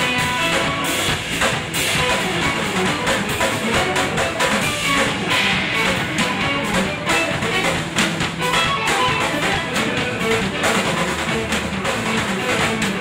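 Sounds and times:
drums and cymbals: 0:00.0 - 0:13.0
electric bass: 0:00.0 - 0:13.0
electric guitar: 0:00.0 - 0:13.0.

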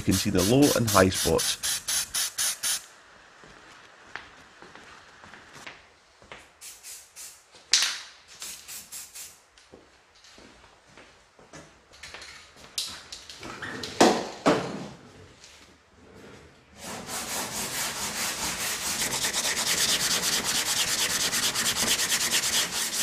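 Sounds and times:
hand-sanding car body: 0:00.0 - 0:02.8, 0:16.8 - 0:23.0.

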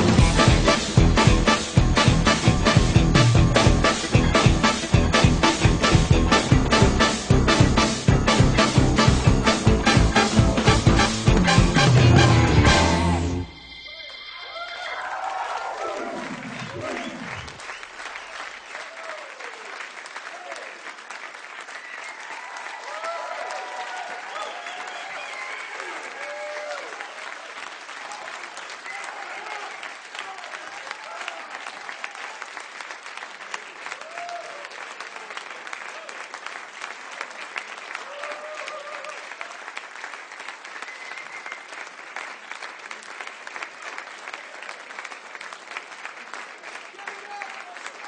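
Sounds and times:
audience clapping: 0:00.0 - 0:48.0
cheers and shouts: 0:11.9 - 0:17.6, 0:18.8 - 0:20.8, 0:21.8 - 0:27.4, 0:28.0 - 0:32.5, 0:33.9 - 0:35.4, 0:38.0 - 0:39.6, 0:46.9 - 0:48.0.

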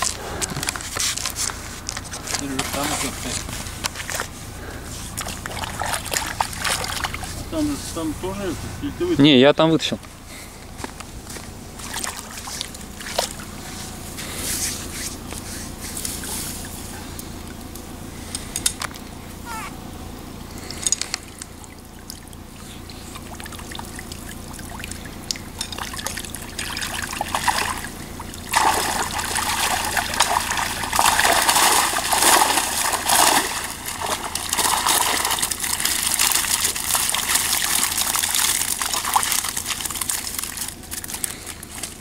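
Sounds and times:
water pouring from a net: 0:02.6 - 0:07.5, 0:11.8 - 0:14.0, 0:21.5 - 0:42.0.

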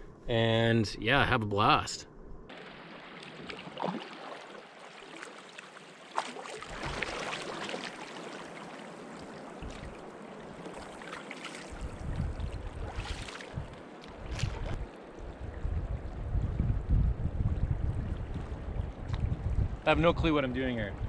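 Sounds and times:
river current rushing: 0:02.5 - 0:11.8.

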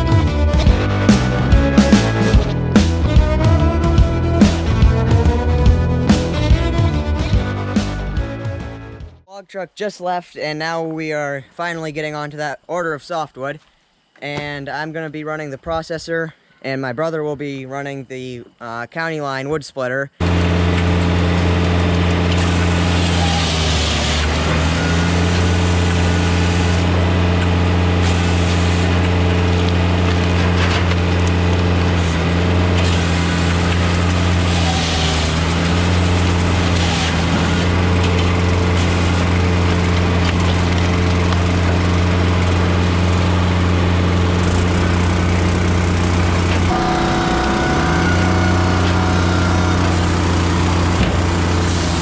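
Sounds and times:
firewood processor engine running: 0:00.0 - 0:08.9, 0:20.2 - 0:52.0.

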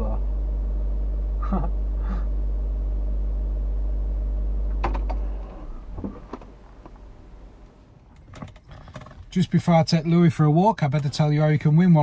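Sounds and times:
car cabin engine and road hum: 0:00.0 - 0:08.7.

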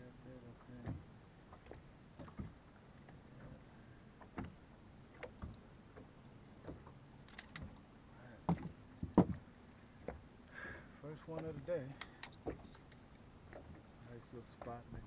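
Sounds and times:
low steady hum: 0:00.0 - 0:15.0
light knocks and clicks: 0:00.6 - 0:03.6, 0:08.5 - 0:09.4.

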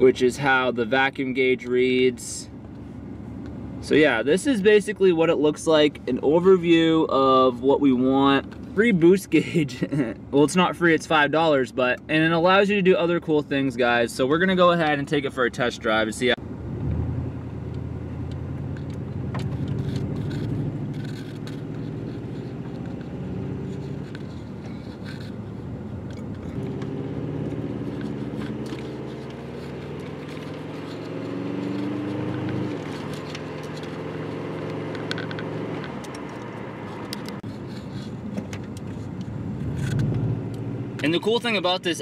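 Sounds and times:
road noise inside car: 0:00.0 - 0:42.0
car engine accelerating: 0:16.4 - 0:37.4, 0:38.0 - 0:41.7.

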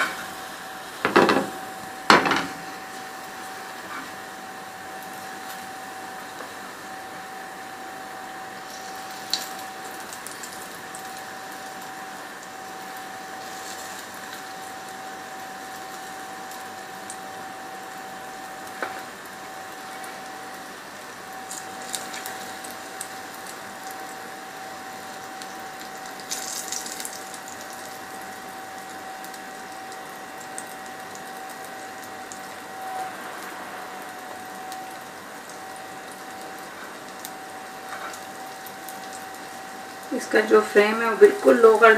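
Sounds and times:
pancake batter sizzling in pan: 0:00.0 - 0:41.9
faint whine: 0:30.5 - 0:41.9.

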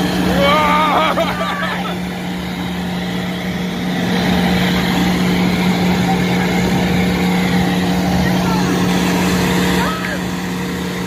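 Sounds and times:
diesel engine running under load: 0:00.0 - 0:11.0.

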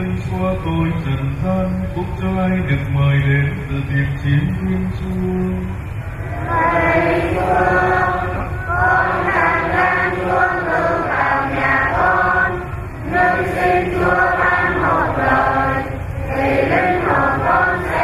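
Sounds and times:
voices chanting in unison: 0:06.0 - 0:18.0.

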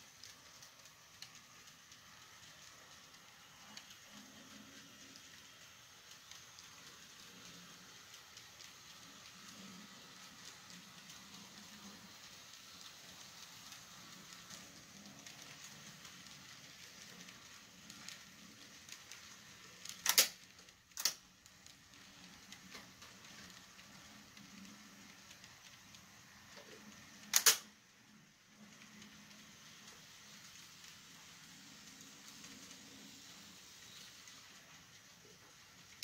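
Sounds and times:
model train rolling on track: 0:00.0 - 0:36.0
loud sharp clicks: 0:20.0 - 0:20.4, 0:27.3 - 0:27.6.

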